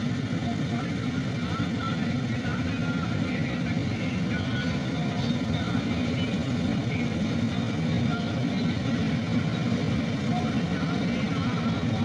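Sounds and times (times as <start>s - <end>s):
combine harvester running: 0.0s - 12.0s.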